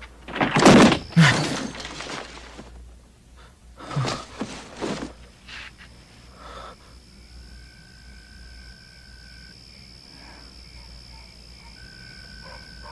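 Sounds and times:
insects calling: 0:00.0 - 0:12.9
frogs calling: 0:05.2 - 0:12.9.

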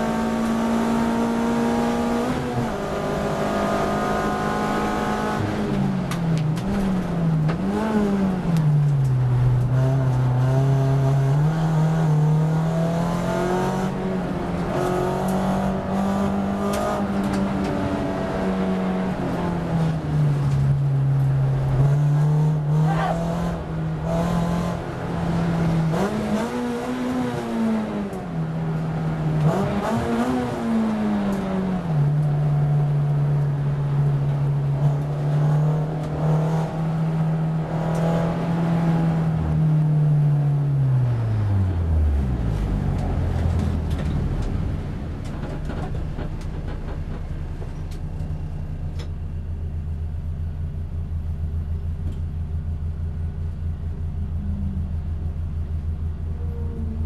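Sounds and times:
race car engine revving: 0:00.0 - 0:39.9.

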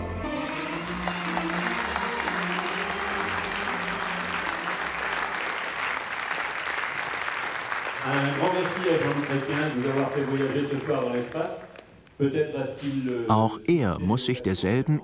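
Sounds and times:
audience applauding: 0:00.4 - 0:12.0.

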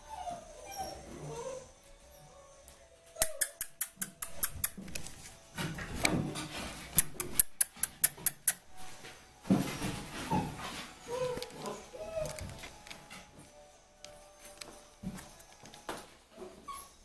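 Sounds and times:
puppy claws clicking on floor: 0:03.2 - 0:05.2, 0:06.9 - 0:08.8, 0:11.1 - 0:16.0.

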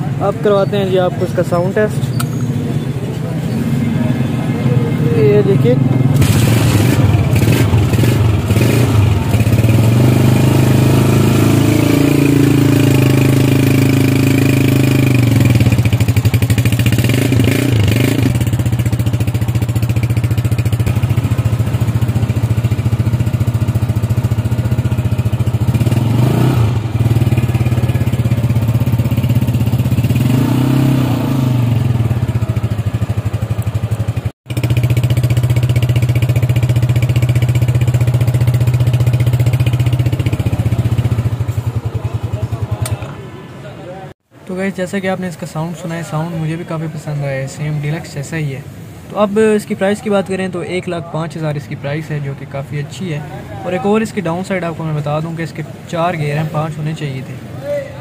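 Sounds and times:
motorcycle engine idling and revving: 0:00.0 - 0:44.4.

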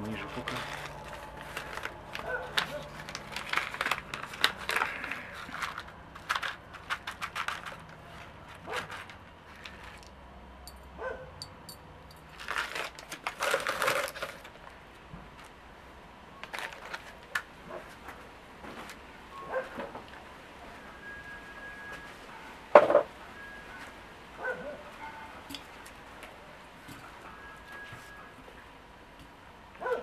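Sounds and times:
packet crinkling and rustling: 0:00.0 - 0:10.2, 0:12.3 - 0:15.6, 0:16.4 - 0:18.2.

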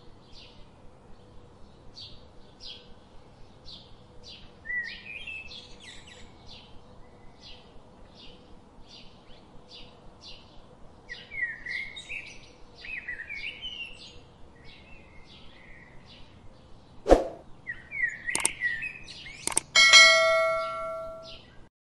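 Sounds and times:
small birds chirping: 0:00.1 - 0:21.7
whoosh: 0:17.1 - 0:17.4
click: 0:18.3 - 0:18.6, 0:19.2 - 0:19.7
bright bell ding: 0:19.8 - 0:21.4.

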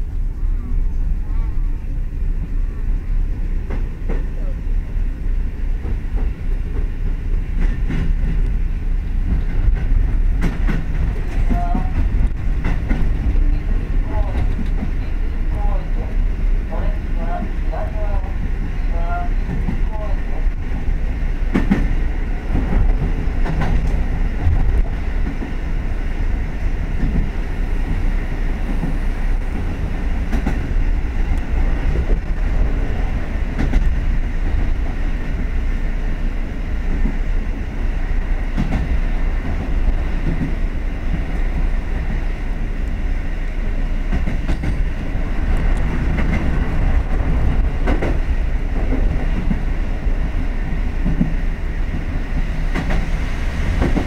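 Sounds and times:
train wheels rumbling: 0:00.0 - 0:54.0
wheels clacking on rail joints: 0:05.7 - 0:15.2, 0:21.5 - 0:25.6, 0:44.0 - 0:54.0.

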